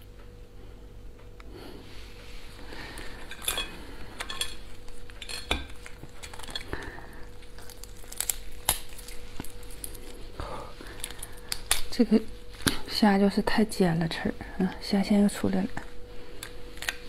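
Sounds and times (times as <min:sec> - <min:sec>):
faint steady hum: 0:00.0 - 0:17.0
lobster shells cracking: 0:02.8 - 0:12.9, 0:16.3 - 0:17.0.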